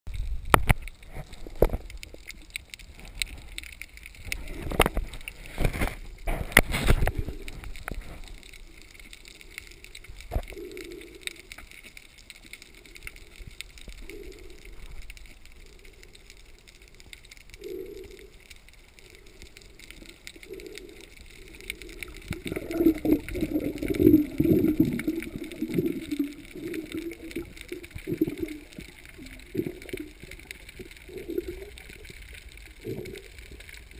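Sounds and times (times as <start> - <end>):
muffled underwater sound: 0.1 - 33.9
pulses of water noise: 0.1 - 33.9.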